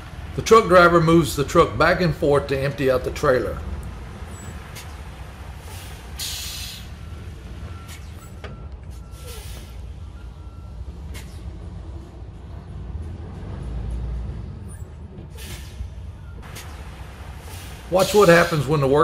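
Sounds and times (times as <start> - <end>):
diesel truck running: 0.0 - 19.0
air brakes hissing: 4.2 - 11.7, 14.6 - 19.0.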